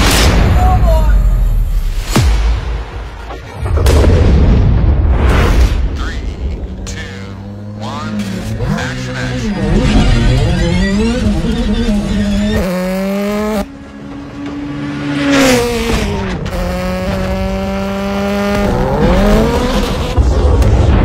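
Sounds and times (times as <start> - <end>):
rally car engine high revs: 7.4 - 20.2.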